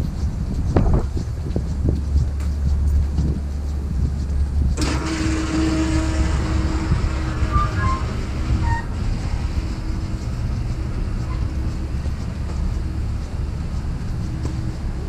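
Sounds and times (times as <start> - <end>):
street traffic rumble: 0.0 - 15.0
short squealing tones: 4.8 - 12.0
vehicle hiss: 4.8 - 15.0.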